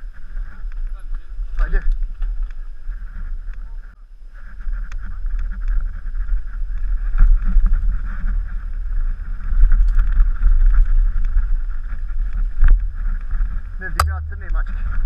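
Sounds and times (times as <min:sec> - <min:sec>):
wind rush on microphone: 0:00.0 - 0:15.0.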